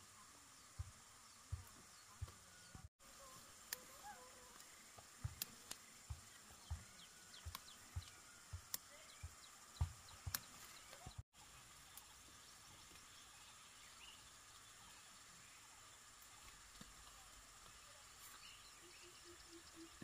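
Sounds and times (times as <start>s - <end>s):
faint high chirps: 0.0s - 20.0s
steady hiss: 0.0s - 20.0s
soft low thumps: 0.6s - 2.9s, 4.9s - 11.2s
sharp clicks: 4.6s - 6.8s, 7.4s - 9.4s, 10.1s - 11.1s.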